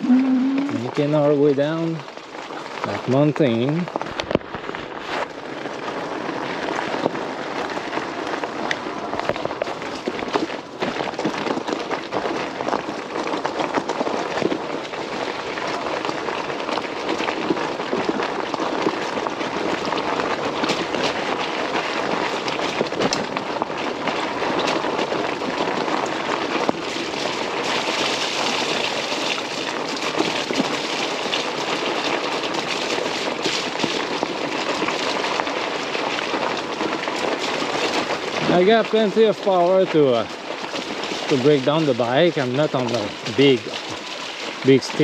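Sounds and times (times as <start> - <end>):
bike tyres rolling on wet gravel: 0.0 - 45.0.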